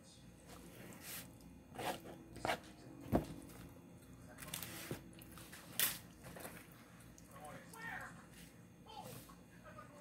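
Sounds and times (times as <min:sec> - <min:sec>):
plastic fork scraping a plate: 0:01.0 - 0:02.7.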